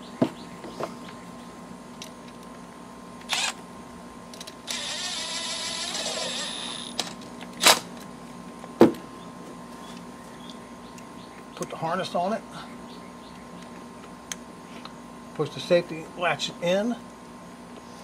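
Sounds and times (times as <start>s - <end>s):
cordless power driver whirring: 3.2s - 3.6s, 4.4s - 7.2s.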